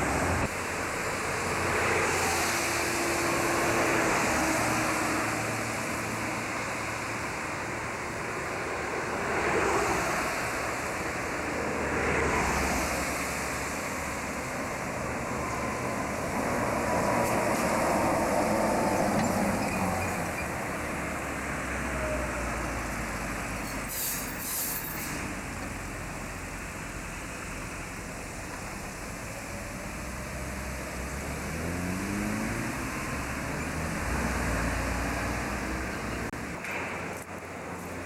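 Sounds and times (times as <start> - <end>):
trolleybus passing: 0.0 - 38.0
brief hiss: 23.6 - 25.4
vehicle speeding up: 29.9 - 36.4.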